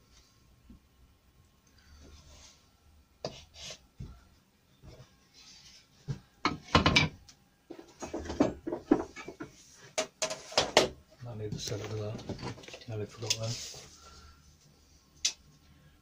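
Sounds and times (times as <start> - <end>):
tools knocking on wooden workbench: 6.1 - 11.0.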